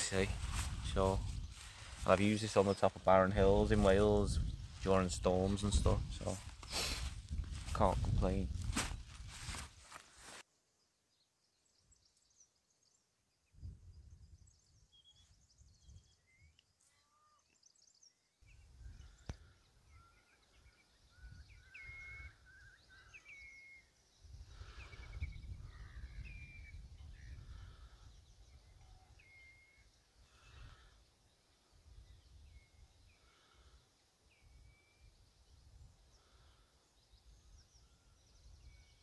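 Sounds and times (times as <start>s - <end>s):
small birds chirping: 0.0s - 39.0s.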